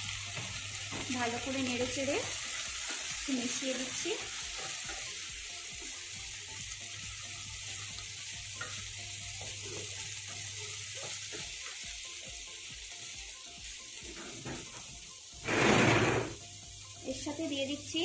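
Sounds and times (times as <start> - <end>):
vegetables sizzling in oil: 0.0 - 18.0
wooden spatula scraping pan: 15.4 - 16.4.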